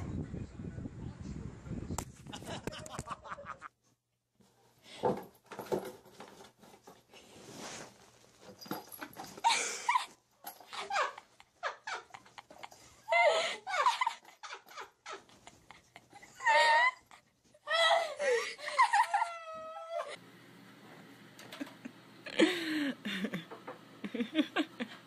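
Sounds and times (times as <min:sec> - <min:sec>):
rustling: 0:05.4 - 0:09.5.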